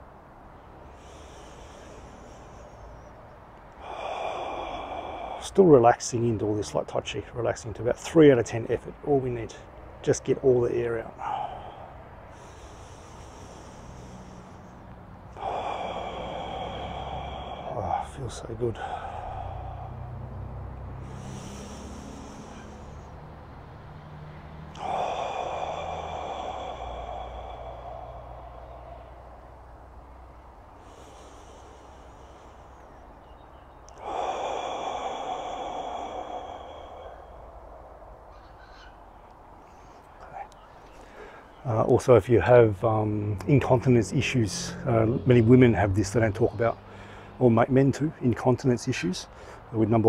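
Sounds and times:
man breathing hard: 0.0 - 6.6, 8.9 - 41.7, 46.7 - 47.4, 49.2 - 50.0
long forceful exhale: 0.5 - 5.5, 11.1 - 38.4, 39.6 - 41.6, 46.8 - 47.4.

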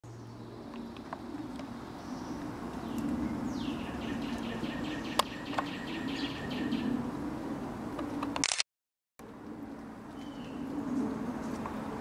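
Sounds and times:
songbird singing a rapid trill: 2.0 - 6.9
sharp clicks: 8.2 - 8.6.

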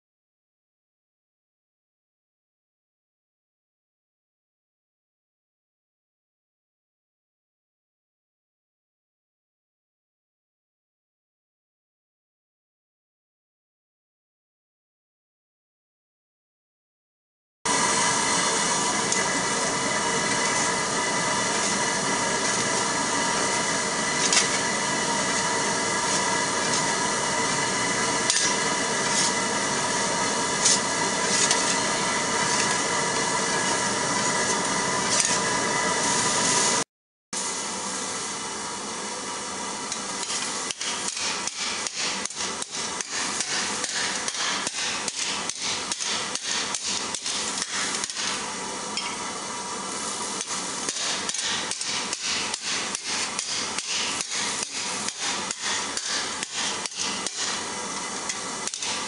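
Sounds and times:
steady hum: 17.7 - 36.8
hammer striking steel plate: 23.3 - 33.8, 39.9 - 48.4, 50.4 - 59.0.

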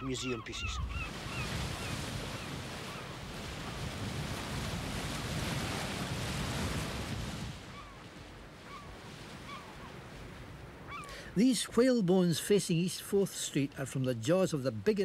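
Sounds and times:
sea surf breaking over rocks: 1.0 - 7.8
short bird calls: 10.9 - 11.2.

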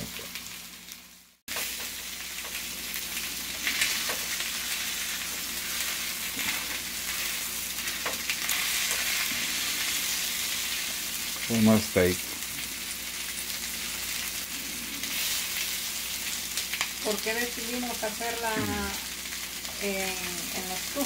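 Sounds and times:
steaks sizzling in pan: 0.0 - 21.0.

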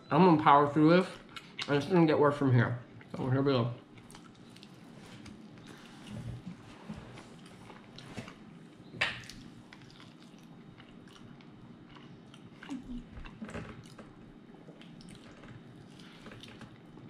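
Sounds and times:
wet chewing sounds: 3.8 - 17.0.

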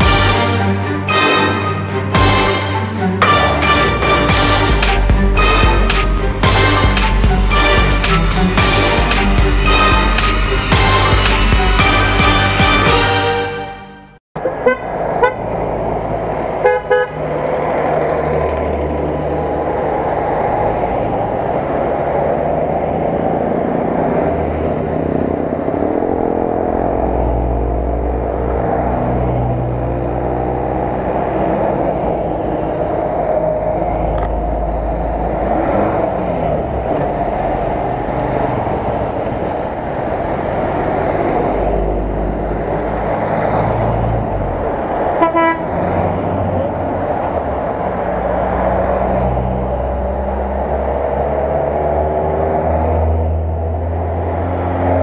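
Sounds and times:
cars driving past: 14.4 - 55.0.

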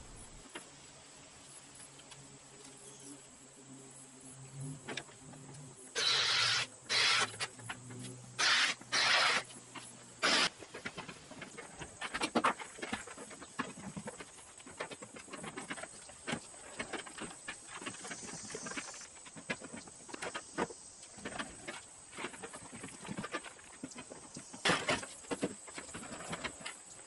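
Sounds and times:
harsh loud bursts: 6.0 - 7.4, 8.4 - 9.5, 10.2 - 10.5.

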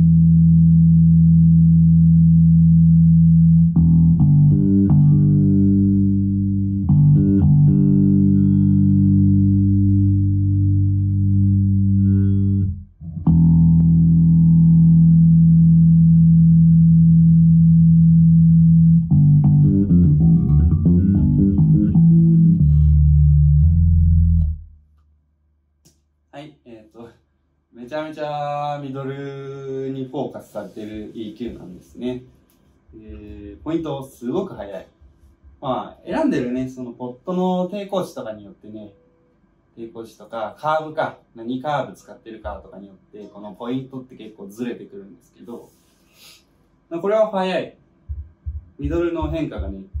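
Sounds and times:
electric bass notes ringing: 0.0 - 24.9.

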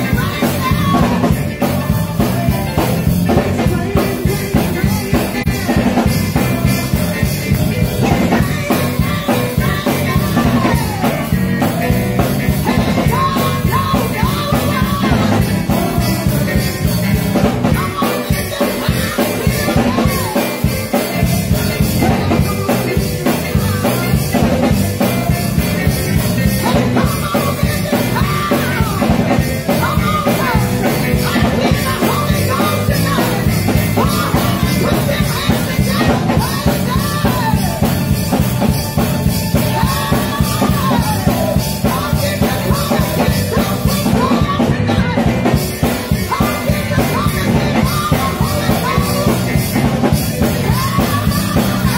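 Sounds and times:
band with drum kit: 0.0 - 51.9
woman singing into a microphone: 0.0 - 51.9.

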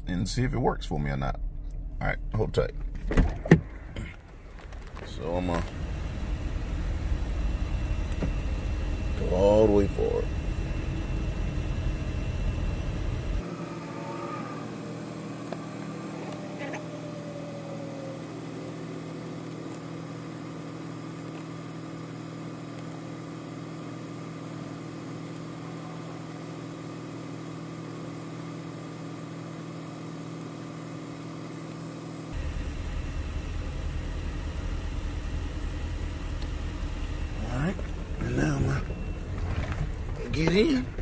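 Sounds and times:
low rumble: 0.0 - 13.4
seat motors humming: 1.5 - 41.0.

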